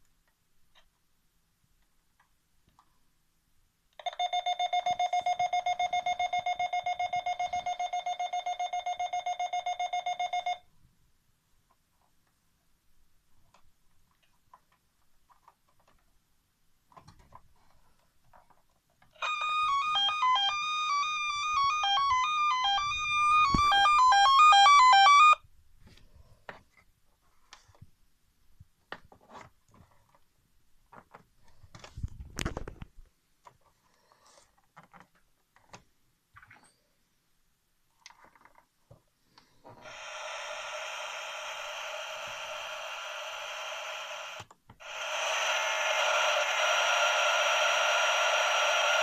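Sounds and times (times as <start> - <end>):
electronic beeping tune: 19.2 - 25.4.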